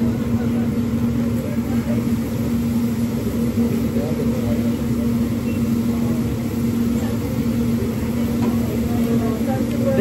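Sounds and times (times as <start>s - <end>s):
ventilation fan drone: 0.0s - 10.0s.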